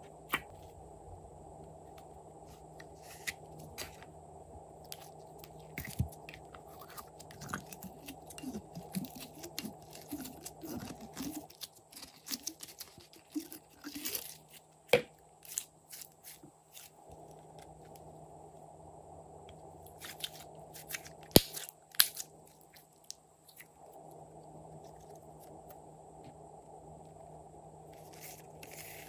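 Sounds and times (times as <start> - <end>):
slime squelching by hand: 4.9 - 14.6.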